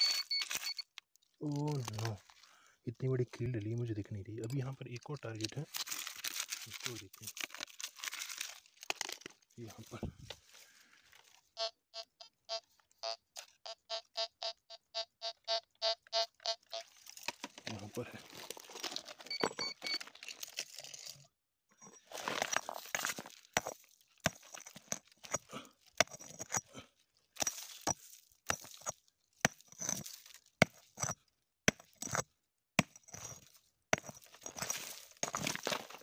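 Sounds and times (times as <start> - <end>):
stones and earth scraping: 0.0 - 11.4, 16.7 - 36.0
digging tool striking stony soil: 22.2 - 26.7, 27.4 - 36.0.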